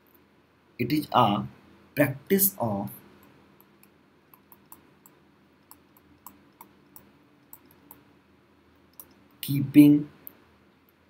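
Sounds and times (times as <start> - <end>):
low background hiss: 0.0 - 11.0
stylus tapping on pen tablet: 3.6 - 8.0.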